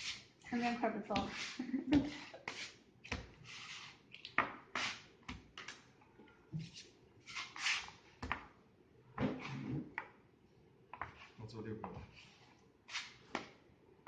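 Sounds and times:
dough rubbing on stone: 0.0s - 5.8s, 6.6s - 8.0s, 12.0s - 13.3s
bench scraper cutting dough: 1.1s - 4.0s, 4.7s - 5.8s.

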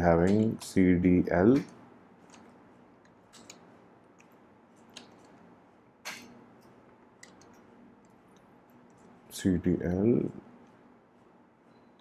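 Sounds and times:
computer keyboard keystrokes: 1.6s - 5.4s.

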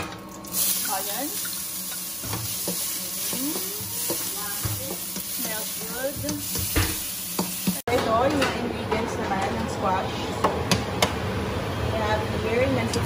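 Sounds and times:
onions sizzling in a wok: 0.5s - 7.9s.

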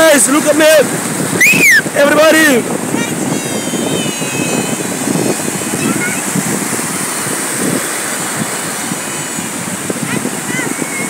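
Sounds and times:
breaking surf: 0.0s - 11.0s
wind buffeting microphone: 0.0s - 11.0s
faint high voice calling: 2.9s - 5.0s.

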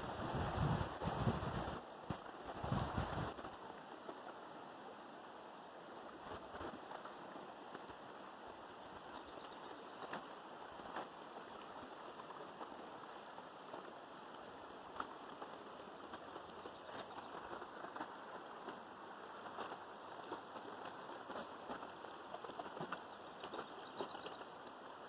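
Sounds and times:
wind buffeting microphone: 0.0s - 3.5s
river water rushing: 0.0s - 25.0s.

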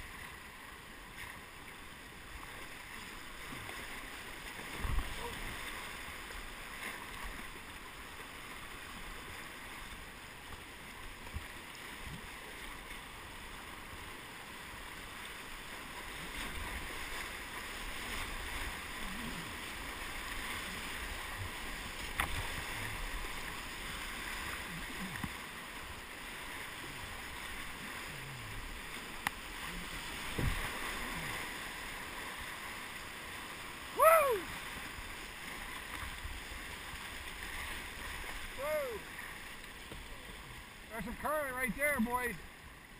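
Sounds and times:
river rapids rushing: 14.7s - 35.8s, 36.6s - 39.6s.

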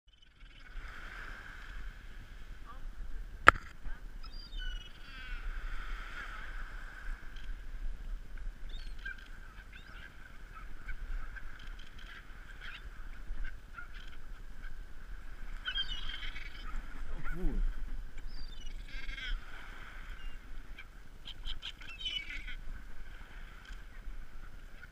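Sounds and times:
gulls calling: 8.6s - 24.9s.

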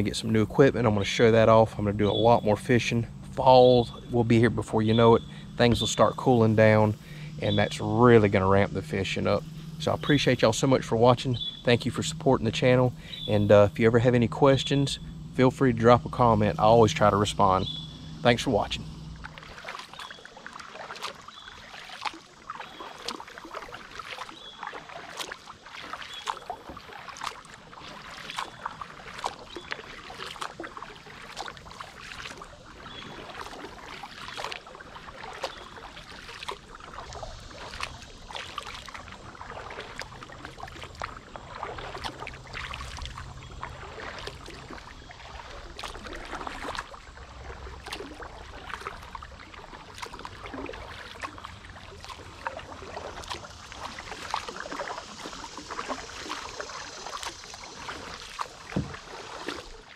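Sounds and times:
kayak paddle splashing: 0.0s - 59.9s
water dripping: 15.8s - 59.9s.

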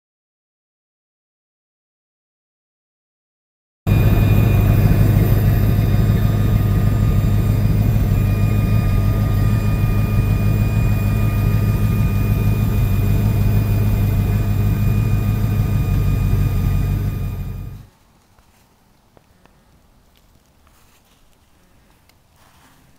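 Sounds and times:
model train motor whirring: 3.9s - 17.9s
low hum: 3.9s - 18.0s.

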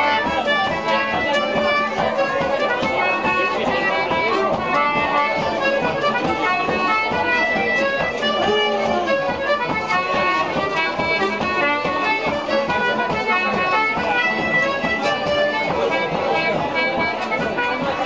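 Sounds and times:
accordion: 0.0s - 18.0s
fiddle: 0.0s - 18.0s.

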